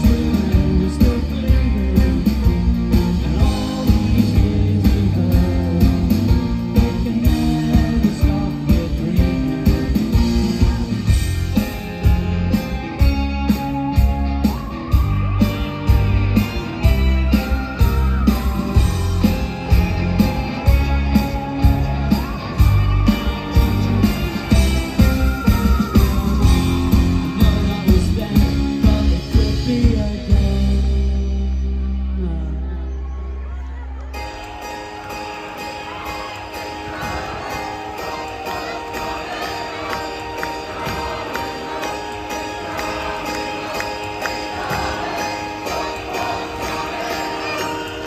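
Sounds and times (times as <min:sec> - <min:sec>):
live rock band playing: 0:00.0 - 0:32.7, 0:34.1 - 0:48.0
drum beat: 0:36.9 - 0:42.0, 0:42.6 - 0:47.6.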